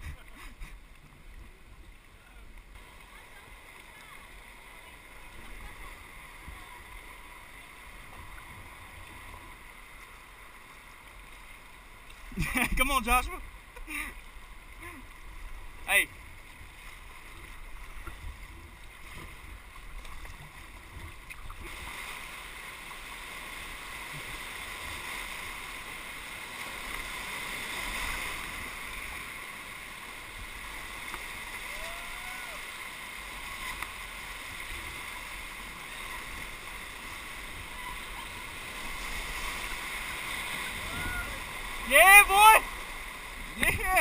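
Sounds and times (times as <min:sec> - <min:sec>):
whitewater rushing over rapids: 0:21.6 - 0:44.0.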